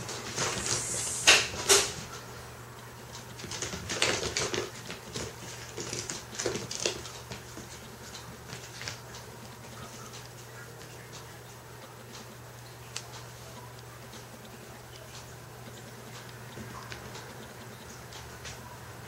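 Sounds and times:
cat paws scrabbling on wooden floor: 0.0s - 2.2s, 3.2s - 11.4s.

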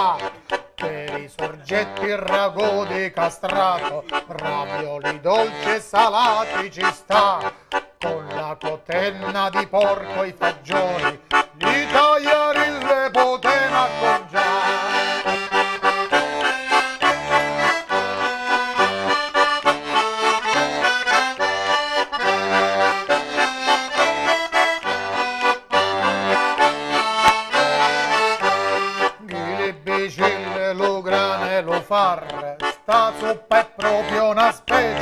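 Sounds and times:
man singing: 0.0s - 15.9s, 28.3s - 35.0s
button accordion playing a tune: 0.0s - 35.0s.

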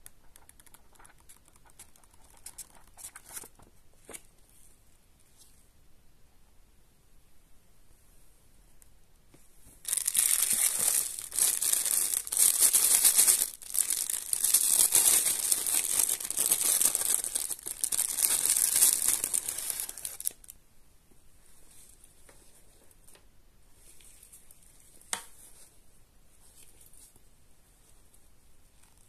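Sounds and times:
plastic wrapping crinkling: 9.8s - 20.5s.

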